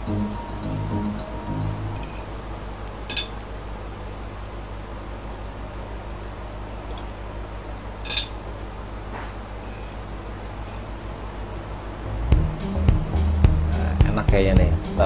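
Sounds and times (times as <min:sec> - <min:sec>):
steady low hum: 0:00.0 - 0:15.0
metal fork clinking on a plate: 0:02.0 - 0:02.3, 0:03.1 - 0:03.9, 0:08.0 - 0:08.4.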